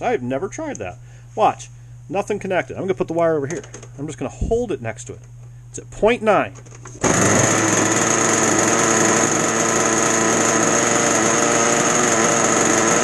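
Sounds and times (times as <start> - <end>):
two-stroke boat engine revving: 7.0 - 13.0.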